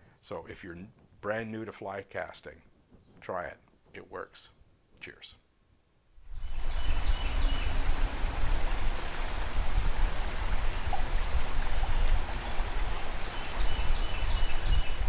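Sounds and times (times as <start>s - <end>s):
wind rumble on microphone: 6.3s - 15.0s
river water rushing: 6.5s - 15.0s.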